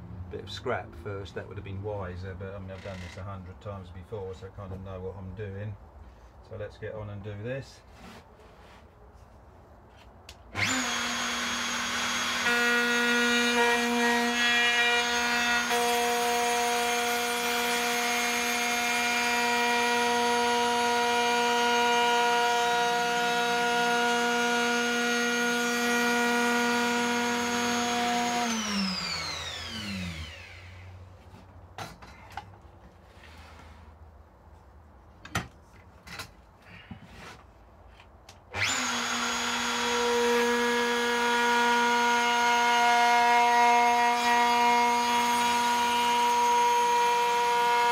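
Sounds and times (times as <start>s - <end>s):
router whining cutting wood: 10.5s - 31.0s, 38.5s - 47.9s.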